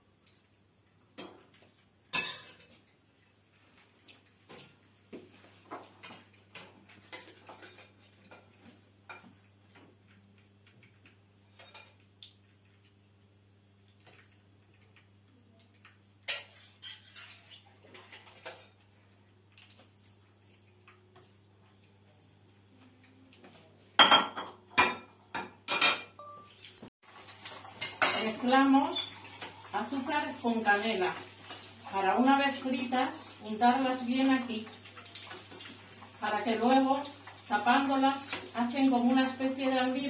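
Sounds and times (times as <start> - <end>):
dishes clinking and clattering: 2.1 - 2.8, 24.0 - 29.7.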